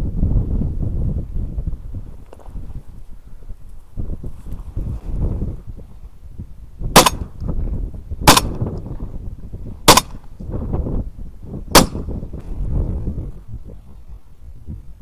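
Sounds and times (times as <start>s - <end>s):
wind rumble on microphone: 0.0s - 15.0s
shotgun shots: 6.9s - 7.3s, 8.2s - 8.7s, 9.8s - 10.2s, 11.7s - 12.1s.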